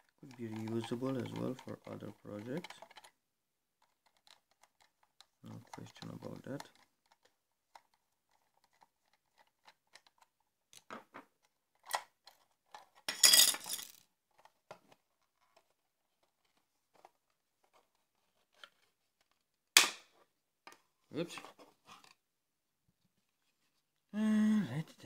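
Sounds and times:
small clicks and clinks of handling: 0.0s - 3.2s, 3.8s - 19.5s.

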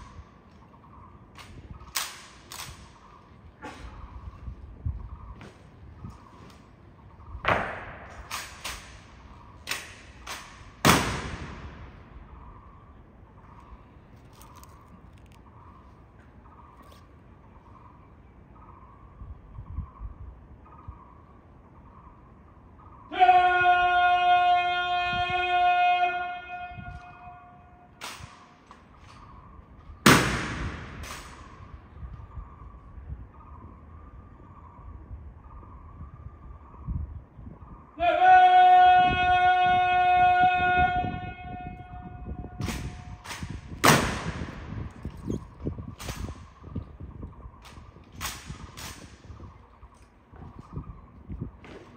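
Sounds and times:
long drawn-out call: 22.8s - 28.0s.

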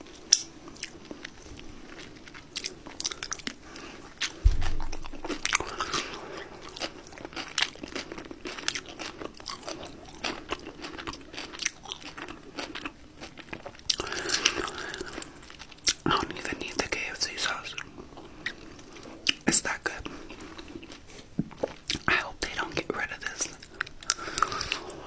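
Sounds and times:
chewing crunchy fried chicken: 0.0s - 25.0s
dull thump: 4.4s - 5.0s.

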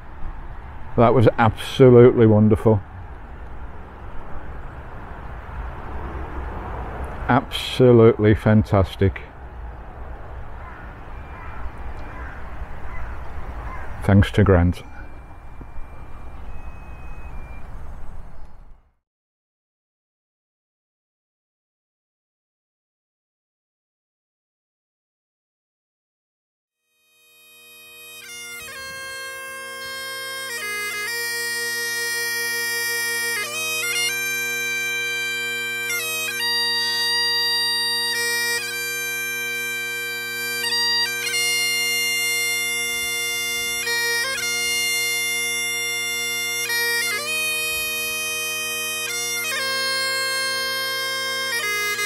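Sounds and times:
bagpipes playing slow tune: 10.6s - 18.0s, 26.8s - 52.0s.

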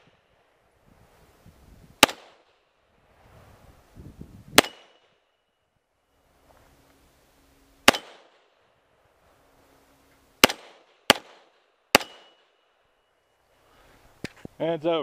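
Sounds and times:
pistol shots: 2.0s - 2.6s, 4.6s - 5.2s, 7.8s - 8.5s, 10.4s - 12.6s.

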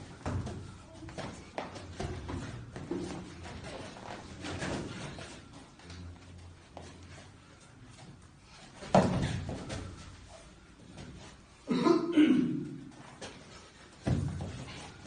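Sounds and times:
feet shuffling on a mat: 0.0s - 11.6s, 12.9s - 15.0s
foot stamping on a mat: 8.8s - 10.0s, 14.0s - 15.0s.

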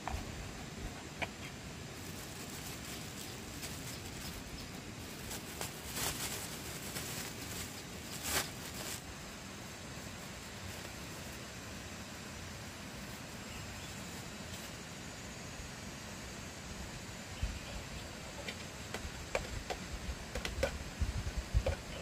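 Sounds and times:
background hiss: 0.0s - 22.0s
plastic bag crinkling: 1.9s - 9.2s.

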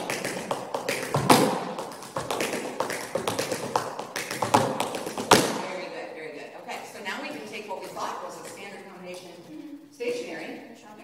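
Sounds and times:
tap shoes striking floor: 0.0s - 5.7s.

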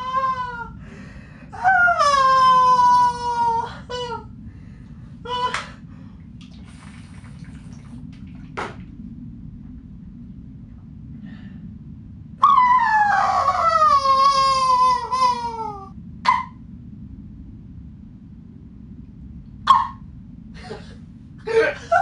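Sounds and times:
low background rumble: 0.0s - 22.0s
high wailing laugh: 21.5s - 22.0s.

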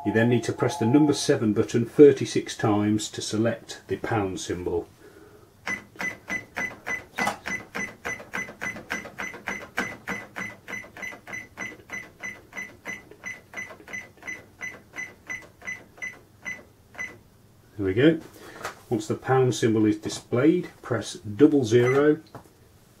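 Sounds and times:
cash register key click and beep: 5.7s - 17.2s.

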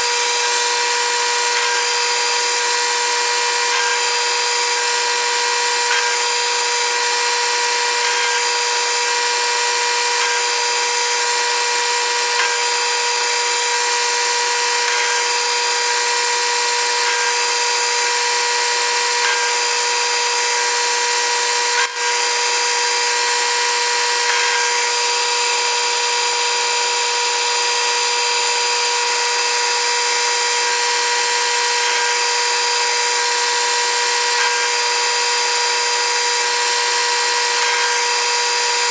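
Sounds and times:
metal lathe whining: 0.0s - 38.9s.

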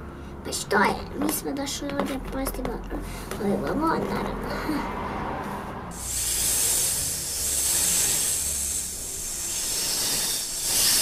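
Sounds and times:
imitated snake hiss: 5.9s - 11.0s.

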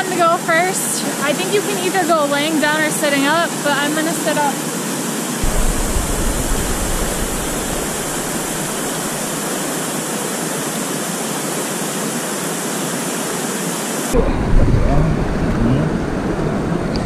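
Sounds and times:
water rushing over rock: 5.4s - 9.8s.

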